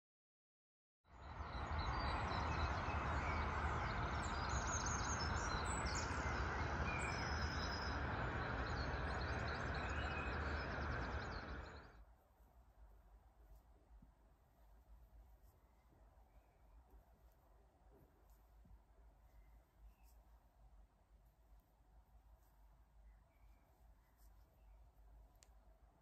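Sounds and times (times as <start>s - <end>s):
birds chirping and singing: 1.5s - 11.9s
steady rushing noise: 2.2s - 16.0s.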